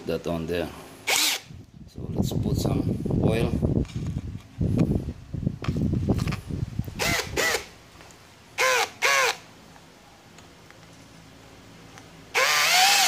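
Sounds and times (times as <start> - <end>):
cordless drill motor whine: 1.0 - 1.6, 7.0 - 7.7, 8.6 - 9.4, 12.3 - 13.0.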